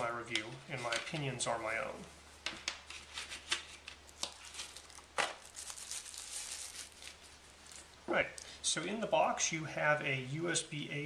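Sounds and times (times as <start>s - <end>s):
cardboard and plastic rustling: 2.8s - 8.0s.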